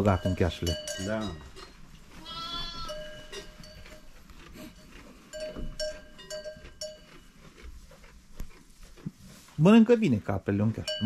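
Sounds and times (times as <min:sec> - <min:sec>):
livestock bell ringing: 0:00.0 - 0:04.1, 0:04.8 - 0:07.4, 0:10.7 - 0:11.0
goat bleating: 0:02.1 - 0:03.5.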